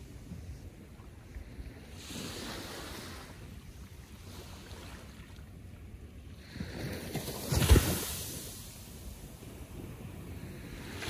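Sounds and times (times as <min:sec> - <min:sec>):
ocean waves lapping on shore: 0:00.0 - 0:11.0.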